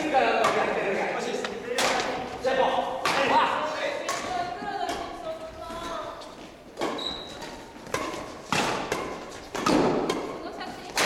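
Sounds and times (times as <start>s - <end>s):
badminton racket hitting shuttlecock: 6.2s - 11.0s.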